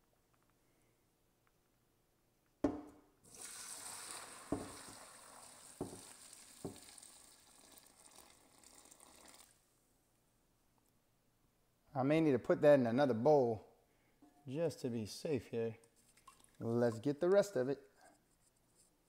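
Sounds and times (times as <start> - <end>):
knocks on pot: 2.6 - 3.0
stock pouring through strainer: 3.3 - 9.6.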